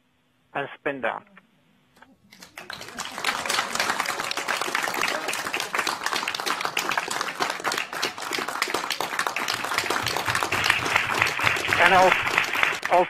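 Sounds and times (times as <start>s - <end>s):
people clapping: 2.2s - 13.0s.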